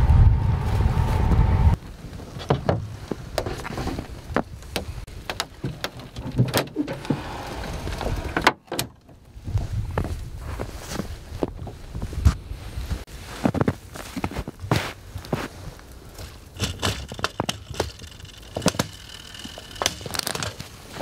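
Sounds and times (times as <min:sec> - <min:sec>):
low rumble: 0:00.0 - 0:01.9
rustling: 0:09.4 - 0:21.0
irregular clicks and knocks: 0:16.2 - 0:20.7.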